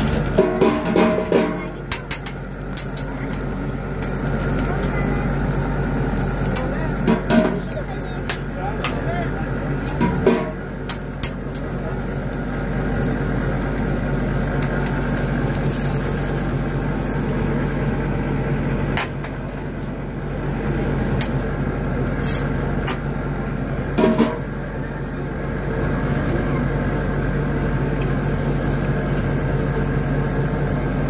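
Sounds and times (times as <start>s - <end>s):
spatula scraping grill grate: 0.0s - 5.0s, 14.5s - 17.8s, 22.1s - 23.0s
grill hiss and hum: 0.0s - 31.0s.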